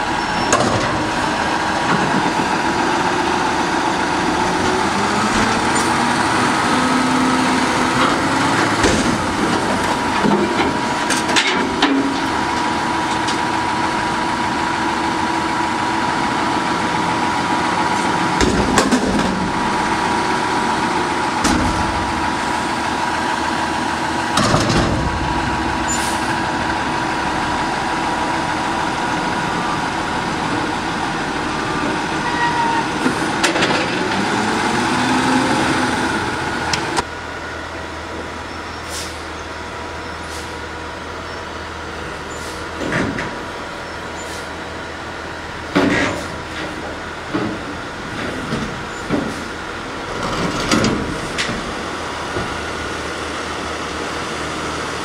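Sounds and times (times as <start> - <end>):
loud metal container bangs: 21.4 - 22.4, 24.3 - 27.2.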